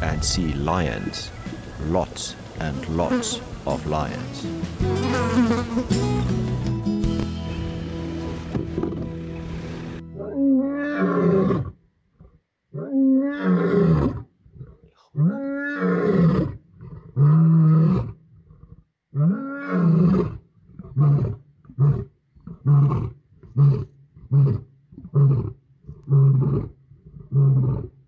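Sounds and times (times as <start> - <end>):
lion roaring: 10.2 - 27.9.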